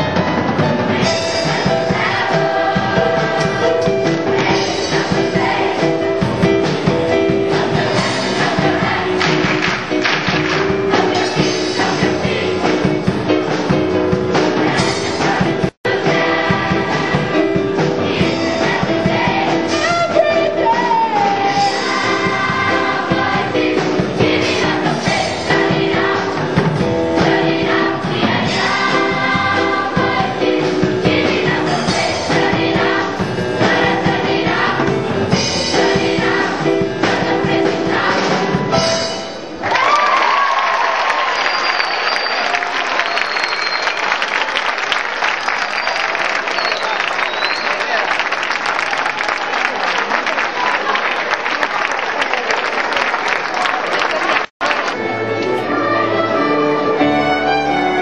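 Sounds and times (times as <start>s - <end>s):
mixed choir singing: 0.5s - 10.0s, 10.6s - 13.2s, 14.2s - 19.9s, 21.1s - 39.0s, 55.0s - 58.0s.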